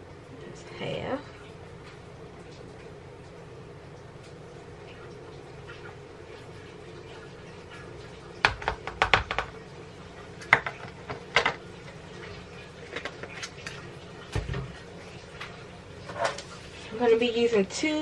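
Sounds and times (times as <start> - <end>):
plastic containers knocking on countertop: 8.4 - 9.6, 10.5 - 11.6.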